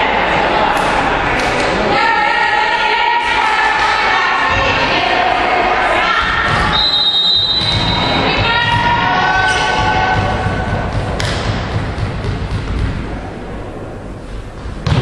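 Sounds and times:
ball thuds on wooden court: 9.8s - 13.1s.

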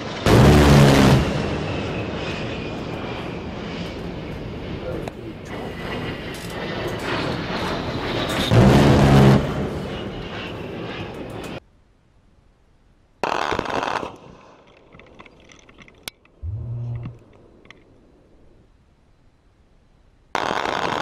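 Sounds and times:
aircraft noise: 0.0s - 11.6s, 16.4s - 17.8s.

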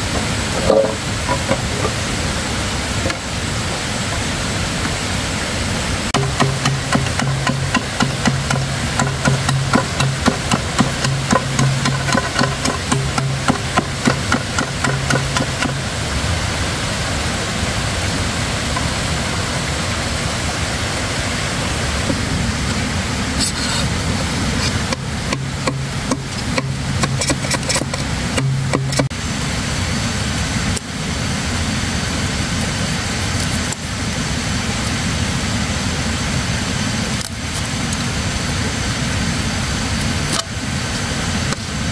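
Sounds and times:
machete chopping bamboo: 6.2s - 15.8s, 24.6s - 29.1s.

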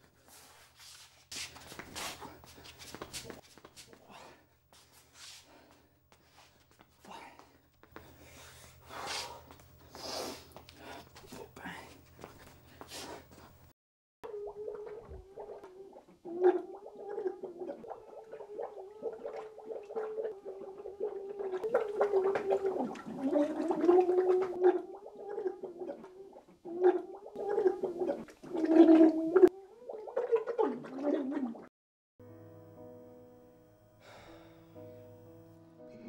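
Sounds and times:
person crying under water: 14.4s - 29.5s.

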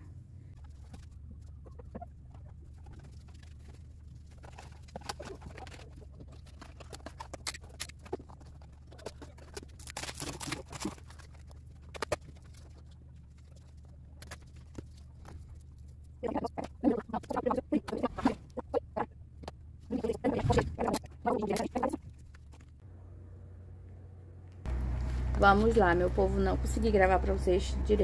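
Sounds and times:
steady low hum: 0.0s - 28.0s
packaging rustling: 2.7s - 16.2s.

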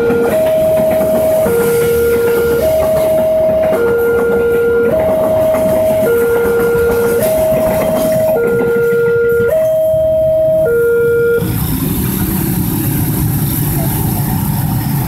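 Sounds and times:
level crossing two-tone alarm: 0.0s - 11.5s
passenger train rushing past: 0.0s - 15.0s.

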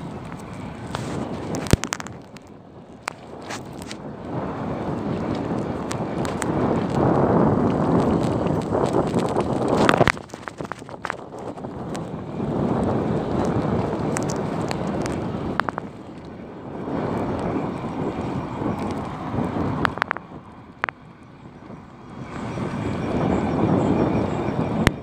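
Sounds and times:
sharp clicks and rattles: 0.0s - 4.0s, 5.2s - 16.3s, 18.6s - 21.0s
tyre rumble on road: 0.0s - 25.0s
wind buffeting microphone: 0.0s - 25.0s.

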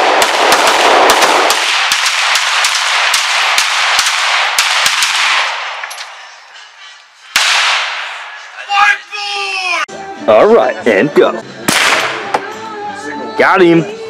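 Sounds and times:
pistol shots: 0.0s - 6.2s, 7.4s - 8.3s, 11.7s - 12.4s.

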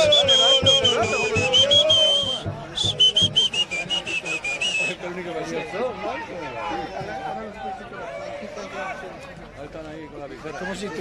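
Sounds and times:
drum beat: 0.0s - 4.4s
whistle tooting: 0.0s - 5.0s.

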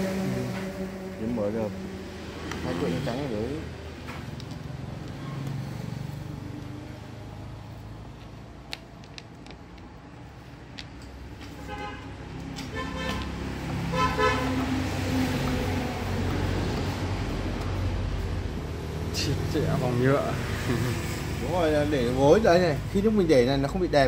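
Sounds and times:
vehicle horn honking: 0.0s - 2.1s, 11.6s - 14.8s
low traffic rumble: 0.0s - 24.0s.

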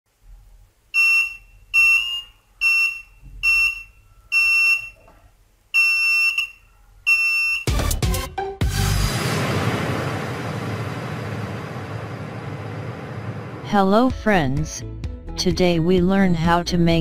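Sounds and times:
high-pitched buzzer beeps: 1.0s - 5.0s, 5.8s - 7.8s
burst of music: 7.7s - 10.1s.

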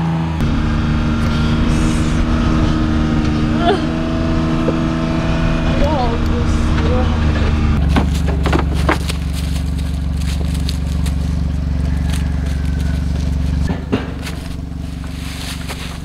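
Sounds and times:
vehicle engine running: 0.0s - 16.0s
knocks: 13.6s - 14.6s.

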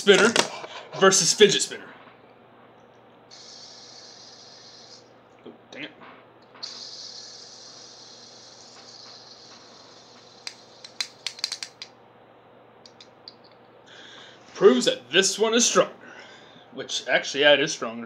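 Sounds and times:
fidget spinners whirring: 3.3s - 5.1s, 6.5s - 11.9s.

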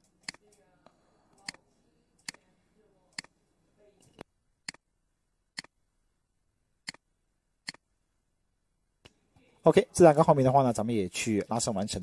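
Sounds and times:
computer mouse clicking: 0.0s - 0.6s, 1.3s - 1.6s, 2.2s - 2.4s, 4.0s - 4.8s, 6.8s - 7.0s, 7.6s - 7.8s.

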